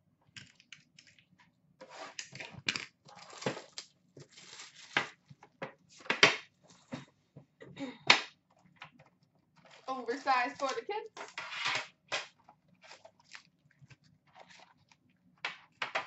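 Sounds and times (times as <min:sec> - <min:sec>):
packaging crinkling: 0:03.1 - 0:05.2, 0:12.3 - 0:15.1.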